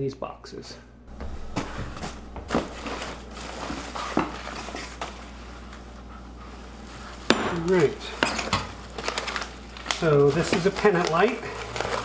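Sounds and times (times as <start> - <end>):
cardboard box rustling: 1.1 - 4.8
plastic wrapping crinkling: 1.1 - 5.9, 6.6 - 12.0.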